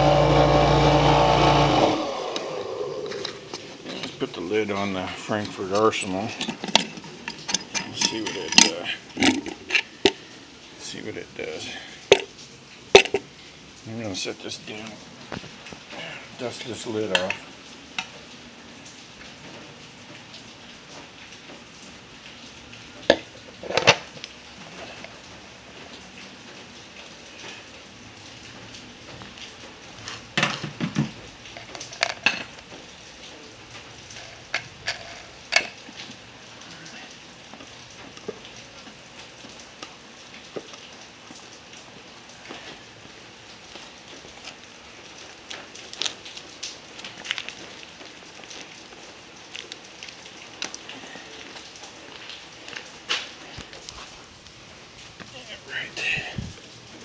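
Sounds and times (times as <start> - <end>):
sharp knocks and clatters: 6.3 - 10.2, 30.4 - 32.6.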